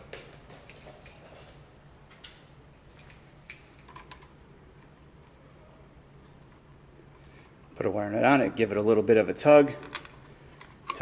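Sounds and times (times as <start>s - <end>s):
wires clicking and scraping: 0.0s - 7.2s, 9.7s - 11.0s
low steady hum: 0.0s - 11.0s.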